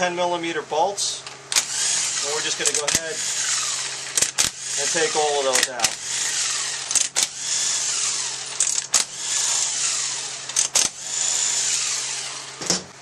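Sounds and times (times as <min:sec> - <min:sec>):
power driver whirring: 0:01.2 - 0:12.9
sharp metal clicks: 0:02.5 - 0:07.4, 0:08.4 - 0:09.2, 0:10.4 - 0:11.0.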